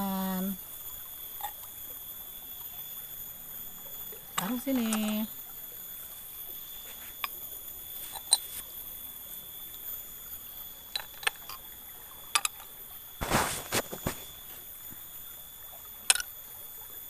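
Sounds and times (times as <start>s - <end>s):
faint high-pitched whine: 0.0s - 17.0s
snail shells clicking: 11.0s - 11.6s, 12.3s - 12.7s.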